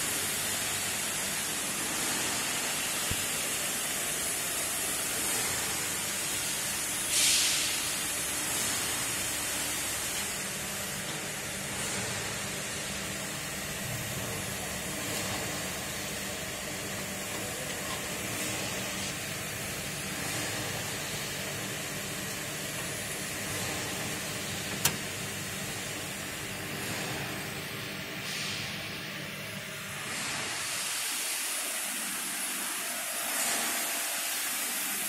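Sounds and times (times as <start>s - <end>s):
computer fans hissing: 2.9s - 30.1s.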